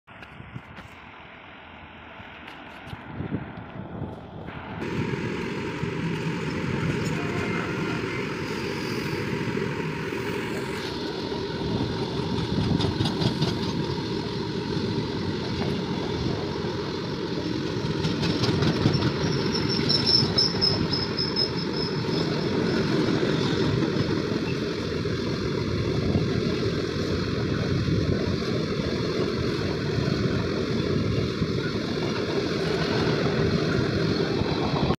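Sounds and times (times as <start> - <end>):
train wheels rumbling on rails: 2.1 - 34.9
high squeal: 18.7 - 23.6.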